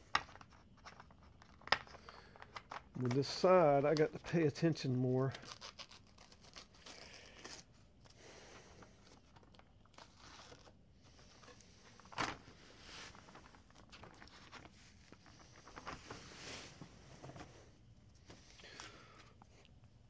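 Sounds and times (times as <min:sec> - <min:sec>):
paper rustling and tearing: 0:05.3 - 0:07.7.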